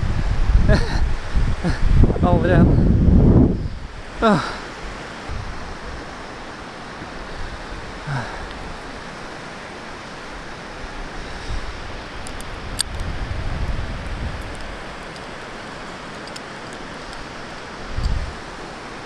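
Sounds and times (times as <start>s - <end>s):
rushing noise on microphone: 0.0s - 6.4s, 10.2s - 18.8s
low wind buffeting: 0.0s - 19.0s.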